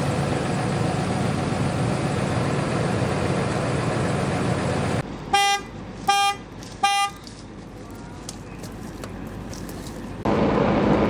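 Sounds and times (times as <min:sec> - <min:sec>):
engine rumble: 0:00.0 - 0:11.0
car alarm horn honks: 0:05.3 - 0:07.2.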